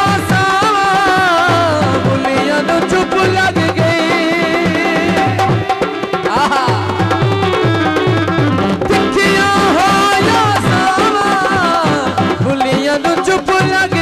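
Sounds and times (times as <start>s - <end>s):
folk music: 0.0s - 14.0s
steady drum beat: 0.0s - 14.0s
sliding melody: 2.2s - 12.6s.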